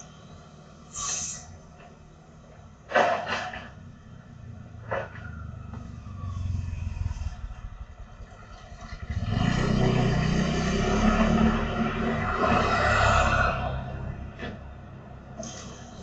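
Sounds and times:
motorcycle approaching: 3.8 - 15.2
motor scooter engine passing: 4.4 - 14.2.

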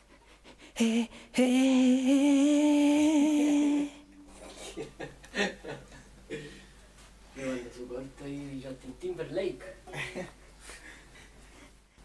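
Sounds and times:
person humming: 0.8 - 4.3.

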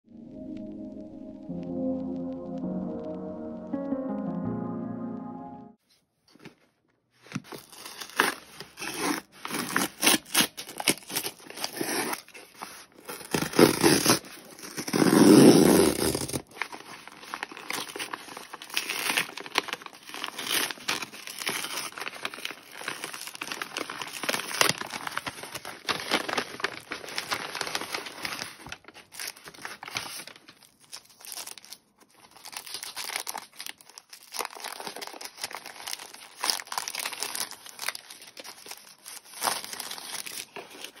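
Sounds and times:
paper envelope crinkling: 6.3 - 41.0
cellophane wrap rustling: 7.2 - 41.0
cardboard mailer tearing: 7.3 - 31.8, 32.4 - 41.0.

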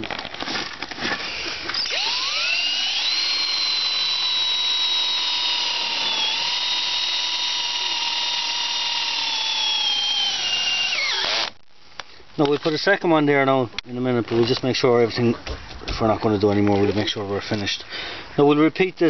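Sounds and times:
cordless drill driving screw: 1.2 - 11.6.

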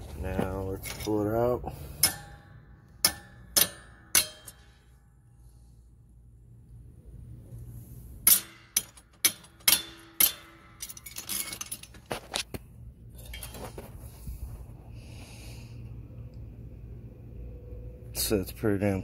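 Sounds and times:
metallic clinks and knocks: 0.7 - 1.3, 8.3 - 13.9.

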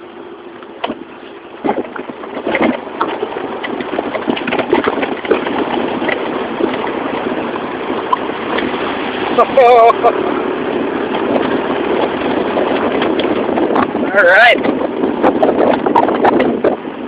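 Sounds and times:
scooter engine running: 0.0 - 17.0
wheels knocking over rocks: 0.6 - 9.5, 11.0 - 16.8
water splashing: 0.7 - 17.0.

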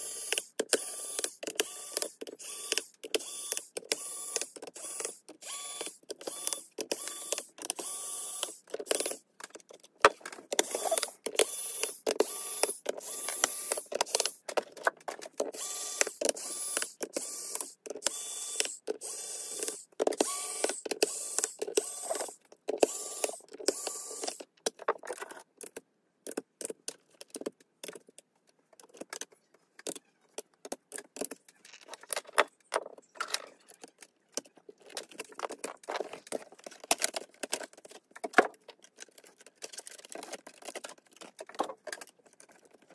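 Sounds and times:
electric screwdriver whirring: 0.0 - 9.2, 10.5 - 14.4, 15.5 - 24.4.

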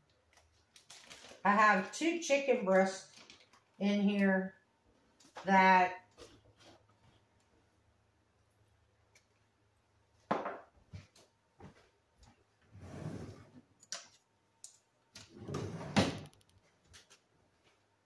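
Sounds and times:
kitchen drawer opening and shutting: 12.7 - 13.6, 15.2 - 16.4.

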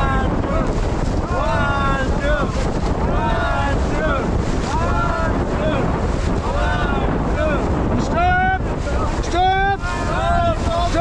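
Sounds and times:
whitewater rushing: 0.0 - 11.0
wind buffeting microphone: 0.0 - 11.0.

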